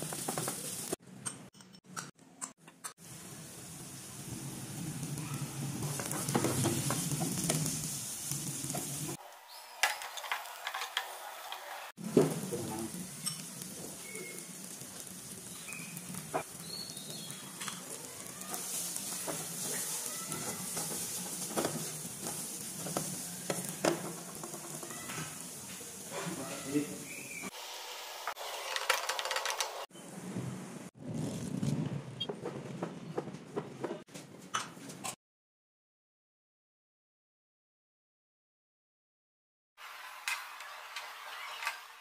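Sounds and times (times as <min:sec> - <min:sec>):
food sizzling in hot oil: 0:00.0 - 0:01.0, 0:03.0 - 0:28.9.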